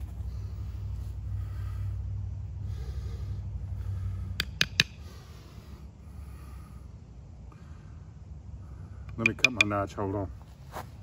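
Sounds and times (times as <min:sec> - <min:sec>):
steady low rumble: 0:00.0 - 0:11.0
sharp wooden knocks: 0:04.4 - 0:05.0, 0:09.1 - 0:09.8.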